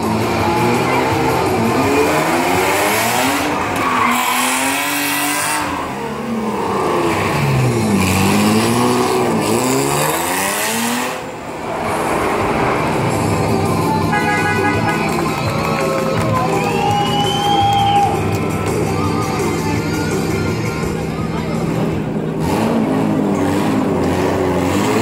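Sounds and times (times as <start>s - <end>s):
car engine revving: 0.0s - 16.2s, 18.3s - 25.0s.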